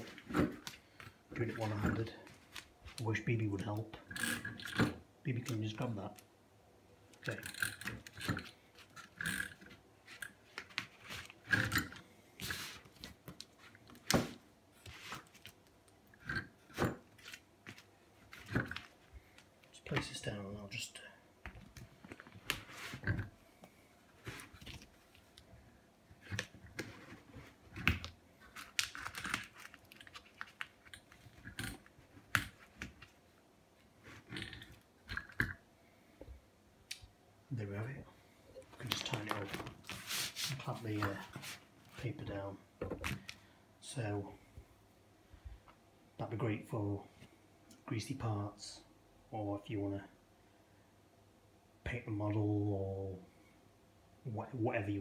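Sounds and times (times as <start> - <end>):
plastic sheet rustling: 38.8 - 41.6.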